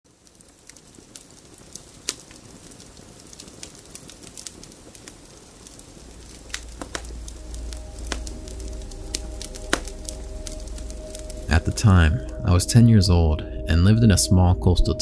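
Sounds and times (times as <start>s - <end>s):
wood fire crackling and popping: 0.1s - 13.8s
low droning music pad: 5.7s - 15.0s.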